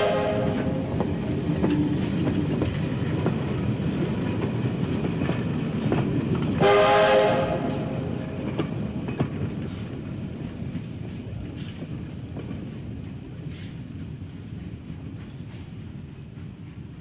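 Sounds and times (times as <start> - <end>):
steam whistle blast: 0.0 - 0.8, 6.6 - 8.0
train wagons rumbling past: 0.0 - 17.0
wheels clicking over rail joints: 0.6 - 6.6, 7.7 - 13.9.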